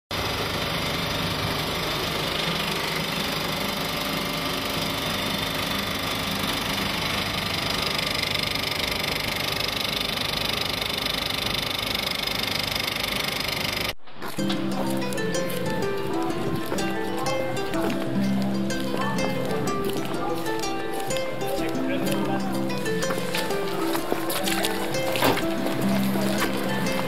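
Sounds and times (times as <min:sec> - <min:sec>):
film projector whirring and clattering: 0:00.1 - 0:14.0.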